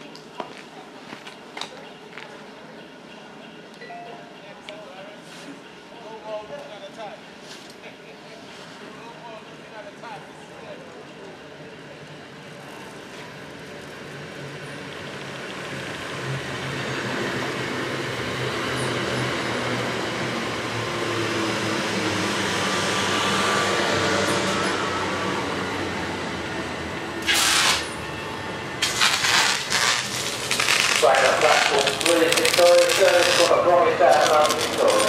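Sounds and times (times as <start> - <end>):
electric train rumbling and humming: 10.5 - 35.0
loud rasping crackling bursts: 27.2 - 28.0, 28.8 - 35.0.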